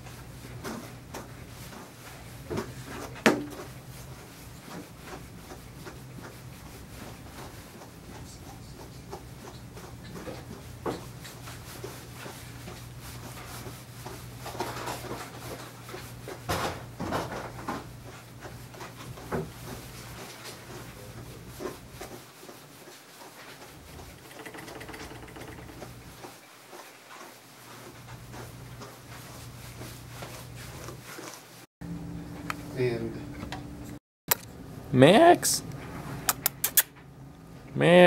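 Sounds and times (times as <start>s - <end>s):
light rubbing on table: 23.6s - 26.0s
small knocks and clicks: 24.0s - 26.0s.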